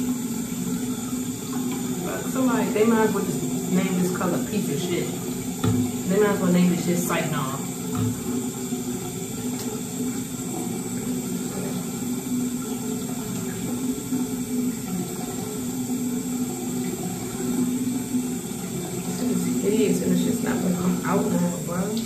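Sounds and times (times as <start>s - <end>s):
tap water running: 0.0s - 22.0s.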